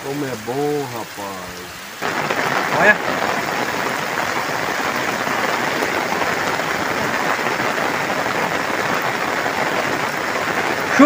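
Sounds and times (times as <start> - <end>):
steady rain falling: 0.0 - 11.0.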